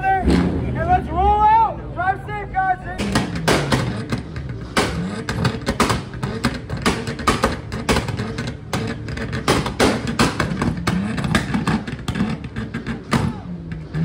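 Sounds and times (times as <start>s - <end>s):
car exhaust popping: 3.0s - 14.0s.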